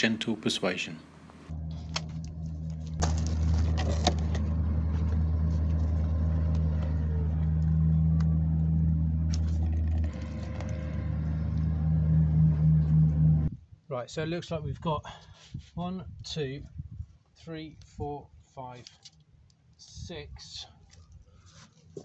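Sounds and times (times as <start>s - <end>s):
low mechanical hum: 1.0s - 13.6s.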